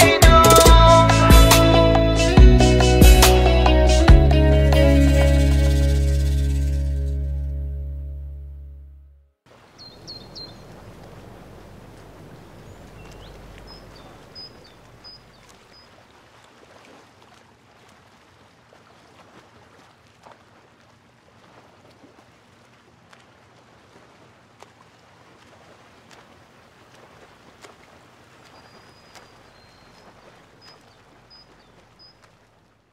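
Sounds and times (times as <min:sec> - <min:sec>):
bird chirps: 0:09.8 - 0:10.9, 0:12.6 - 0:15.9, 0:28.6 - 0:32.3.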